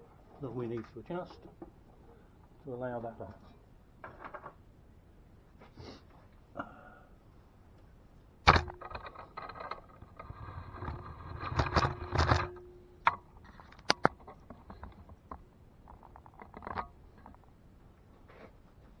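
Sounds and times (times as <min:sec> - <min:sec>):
clattering and scraping: 0:04.0 - 0:04.6, 0:08.5 - 0:17.6.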